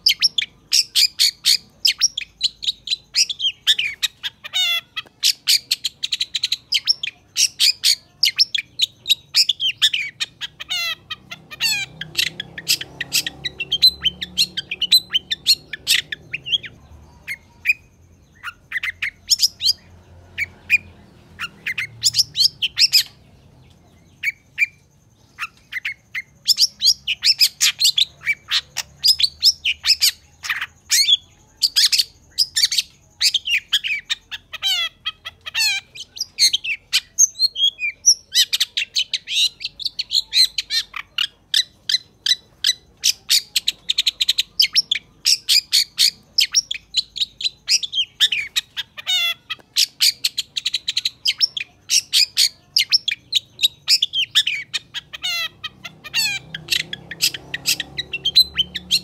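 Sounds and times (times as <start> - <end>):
bird song: 0.0 - 59.0.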